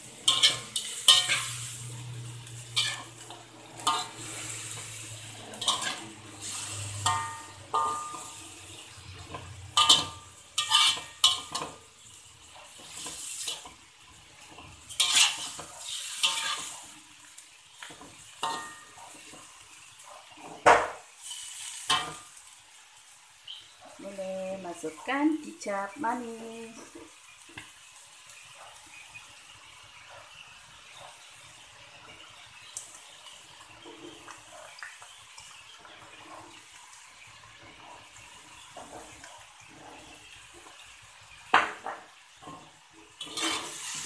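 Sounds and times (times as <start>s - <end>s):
metal spatula scraping a wok: 0.0s - 17.0s, 17.8s - 19.6s, 21.2s - 22.4s, 42.4s - 44.0s
frying sizzle: 0.0s - 44.0s.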